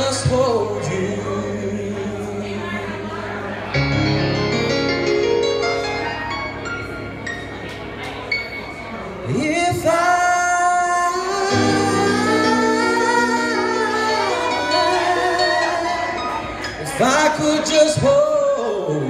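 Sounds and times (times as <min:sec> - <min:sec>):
man singing a ballad: 0:00.0 - 0:03.7, 0:09.3 - 0:19.0
backing music: 0:03.7 - 0:18.5.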